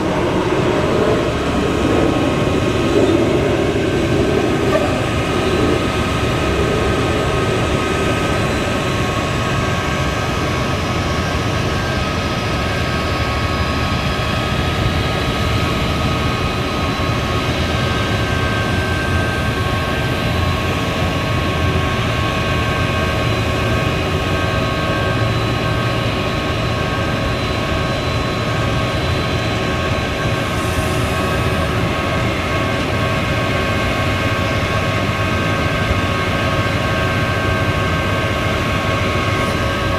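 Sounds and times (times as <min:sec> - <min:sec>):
truck engine running: 0:00.0 - 0:22.4
hydraulic whine: 0:00.0 - 0:39.9.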